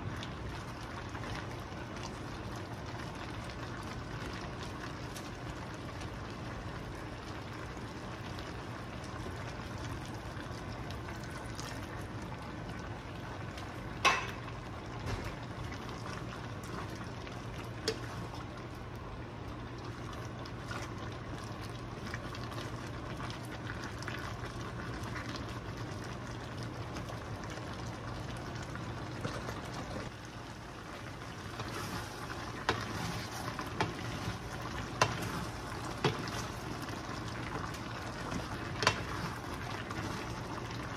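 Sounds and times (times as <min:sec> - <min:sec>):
meat sizzling in a skillet: 0:31.4 - 0:40.9.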